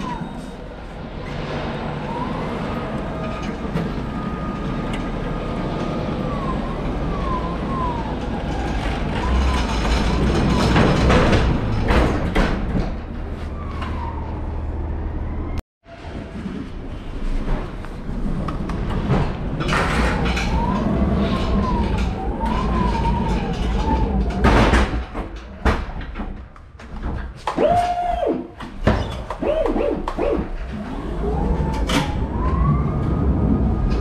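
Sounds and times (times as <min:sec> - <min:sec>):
wheels knocking and rattling: 0:02.8 - 0:13.4, 0:16.0 - 0:34.0
pallet truck motor whining: 0:27.4 - 0:34.0.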